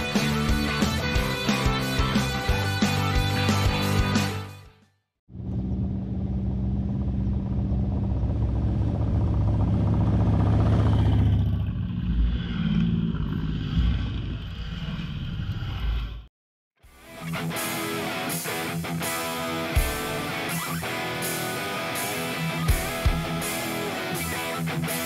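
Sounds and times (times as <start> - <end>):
rock music: 0.0 - 4.8, 16.9 - 25.0
motorcycles passing: 7.2 - 14.7.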